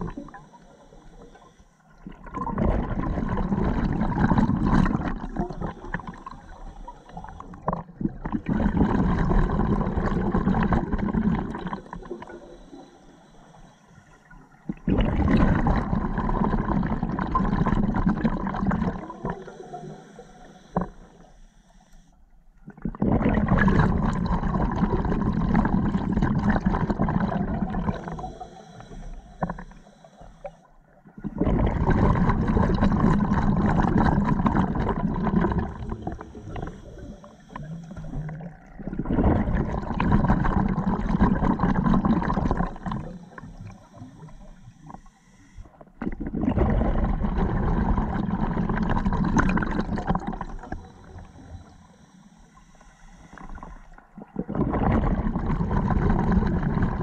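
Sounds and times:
underwater exhalation bubbles: 0.0s - 0.5s, 2.0s - 6.6s, 7.2s - 12.5s, 14.7s - 20.0s, 22.6s - 28.4s, 31.1s - 43.8s, 45.9s - 51.7s, 54.0s - 57.0s
regulator inhalation hiss: 5.6s - 7.4s, 11.8s - 14.2s, 19.4s - 22.2s, 27.9s - 30.7s, 35.8s - 38.4s, 42.8s - 45.8s, 50.4s - 54.0s.

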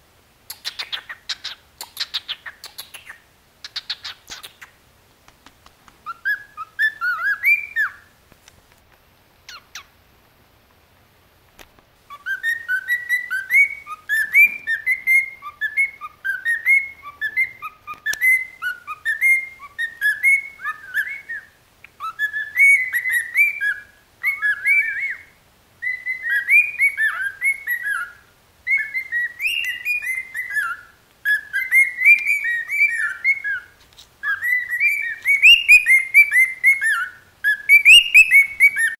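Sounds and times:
cockatiel whistling: 0.5s - 4.7s, 6.0s - 8.1s, 12.1s - 38.9s.

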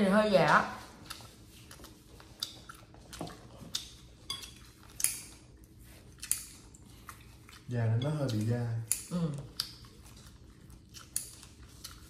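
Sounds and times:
chewing: 0.5s - 12.0s
utensils clinking on dishes: 4.2s - 5.3s, 7.9s - 9.1s.

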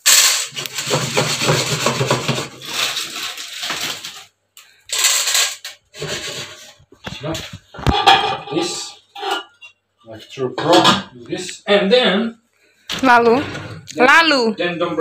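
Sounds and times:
popcorn kernels rattling in a pot: 0.0s - 7.5s.

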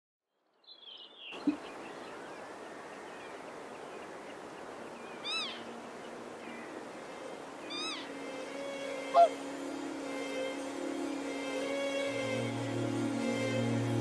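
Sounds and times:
steady background hiss: 0.8s - 14.0s
distant swan calls: 1.4s - 9.5s
swan call: 5.2s - 5.6s, 7.7s - 8.2s, 9.0s - 9.4s.

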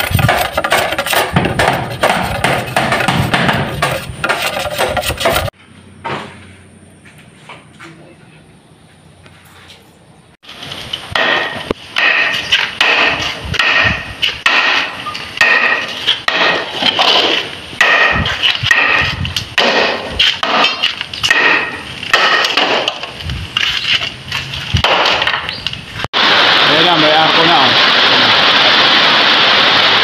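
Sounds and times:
tool striking bamboo pole: 0.0s - 6.4s, 11.1s - 23.2s, 24.7s - 25.7s.

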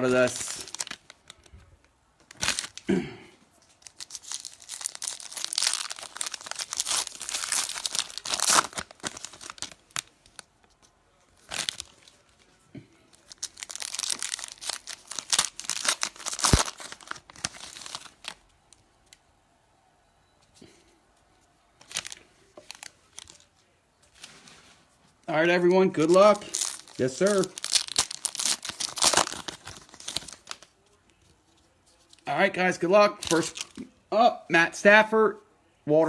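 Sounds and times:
foil wrappers crinkling and tearing: 0.0s - 1.5s, 2.3s - 2.9s, 3.7s - 10.5s, 11.4s - 12.5s, 13.1s - 18.4s, 21.8s - 23.5s, 25.9s - 30.7s.

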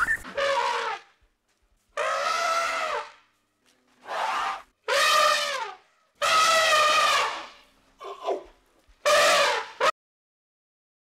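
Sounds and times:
elephant trumpeting: 0.2s - 1.1s, 2.0s - 3.2s, 4.0s - 9.9s.

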